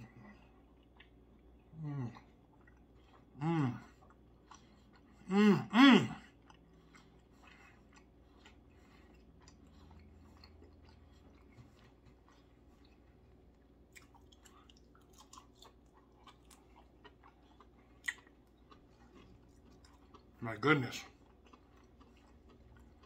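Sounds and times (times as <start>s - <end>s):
man chewing: 0.0s - 23.0s.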